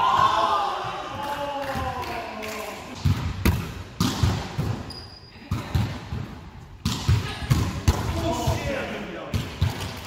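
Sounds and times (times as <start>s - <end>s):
shoe squeak: 4.8s - 5.4s.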